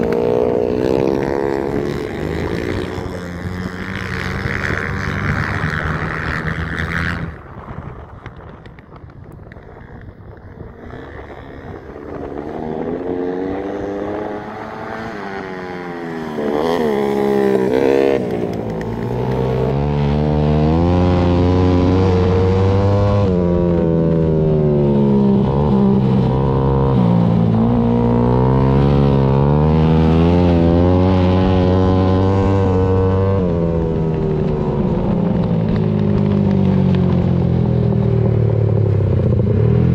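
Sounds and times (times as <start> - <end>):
dirt bike engine revving: 0.0 - 7.4, 10.7 - 39.9.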